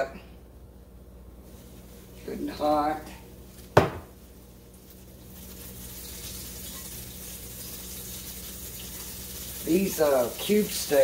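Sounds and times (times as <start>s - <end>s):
steak sizzling in hot oil: 3.5s - 11.0s
sharp knock: 3.8s - 4.1s.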